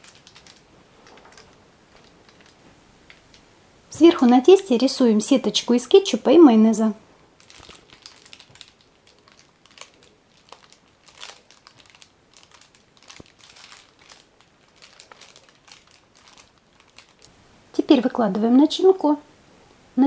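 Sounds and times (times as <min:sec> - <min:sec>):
plastic bags crinkling: 0:00.0 - 0:03.4, 0:07.3 - 0:17.3.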